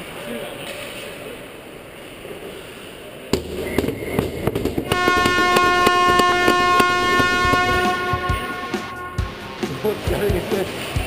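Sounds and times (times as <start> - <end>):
burst of noise with sharp knocks: 3.3 - 9.0
goal horn: 4.9 - 9.7.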